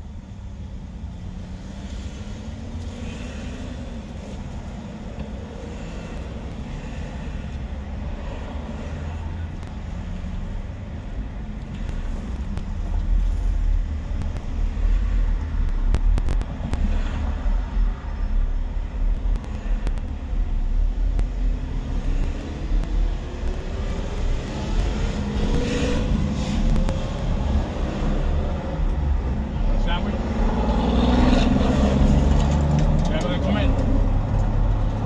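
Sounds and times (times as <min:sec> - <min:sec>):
traffic rumble: 0:00.0 - 0:35.0
vehicle engine speeding up: 0:21.1 - 0:35.0.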